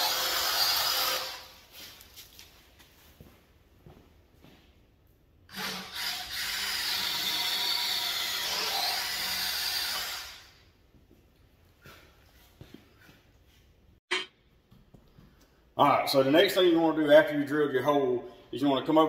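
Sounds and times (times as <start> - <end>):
cordless drill boring into wood: 0.0 - 1.5, 5.5 - 10.5.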